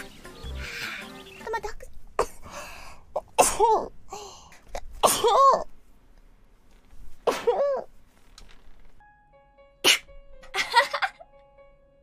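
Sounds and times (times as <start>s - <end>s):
woman sneezing: 9.8s - 10.1s.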